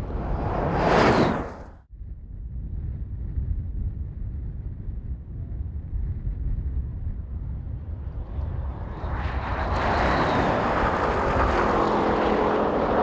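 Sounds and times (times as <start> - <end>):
wind noise: 0.0 - 13.0
cars accelerating hard: 9.6 - 13.0.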